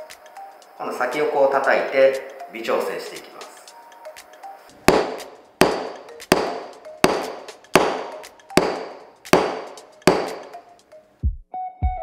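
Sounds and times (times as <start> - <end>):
wooden gauge knocking on workbench: 4.9 - 10.5.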